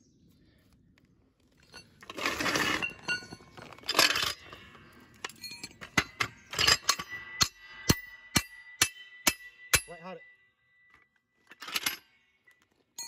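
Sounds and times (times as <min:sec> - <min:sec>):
rough metal scrapes: 0:01.6 - 0:07.8
metallic clinks and knocks: 0:01.6 - 0:13.0.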